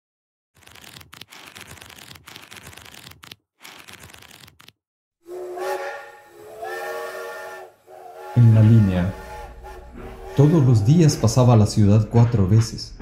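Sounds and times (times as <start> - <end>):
paper pages flipping: 0.6 - 4.8.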